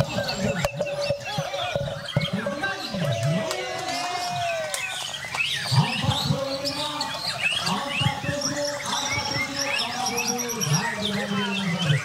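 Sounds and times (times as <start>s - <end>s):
birds singing whistles and trills: 0.0s - 12.0s
people's voices: 0.0s - 12.0s.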